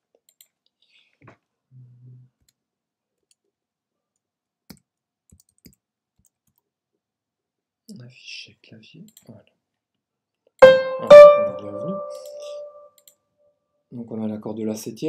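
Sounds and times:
computer mouse clicks: 0:04.7 - 0:06.7.

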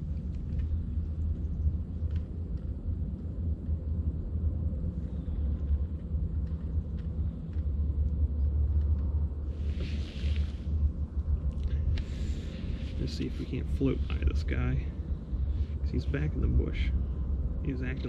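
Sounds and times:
faint clicks: 0:00.0 - 0:03.8, 0:05.0 - 0:10.6
wind buffeting microphone: 0:00.0 - 0:18.0.

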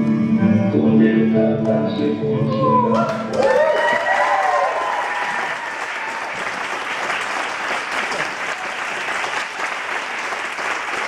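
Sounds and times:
audience applause: 0:03.0 - 0:11.0.

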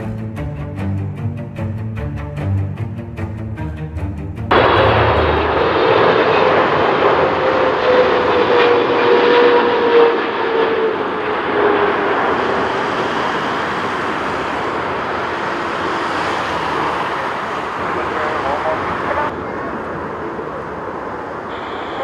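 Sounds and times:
jet airliner roar with whine: 0:04.5 - 0:22.0.

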